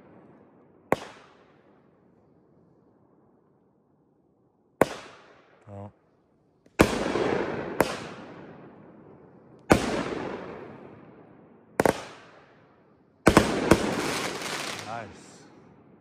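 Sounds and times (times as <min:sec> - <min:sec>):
fireworks bangs: 0:13.3 - 0:15.6.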